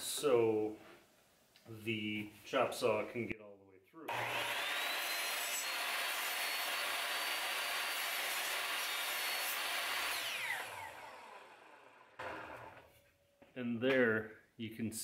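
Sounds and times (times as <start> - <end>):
miter saw cutting wood: 4.1 - 12.8
saw blade spinning down: 4.1 - 12.9.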